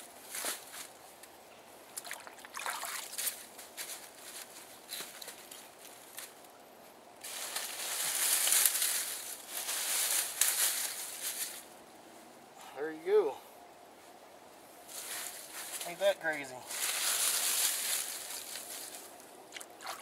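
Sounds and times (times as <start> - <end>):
water sloshing around feet: 2.0 - 3.3
hands rustling dry leaves: 2.7 - 6.4, 7.2 - 12.3, 14.8 - 20.0.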